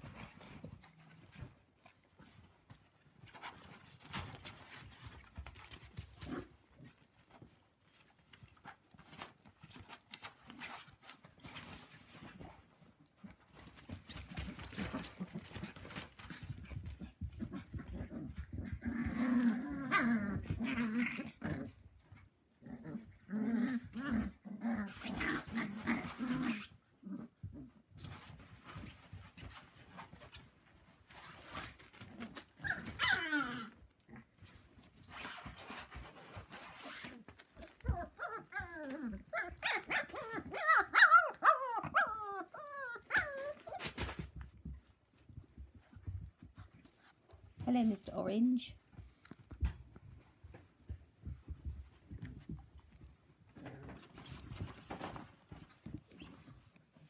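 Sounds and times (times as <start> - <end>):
puppies play-growling: 0.0 - 47.7, 48.8 - 57.0
puppy whimpers and yips: 32.6 - 33.6, 37.7 - 44.1
puppy yelp: 32.6 - 33.8, 37.6 - 44.2.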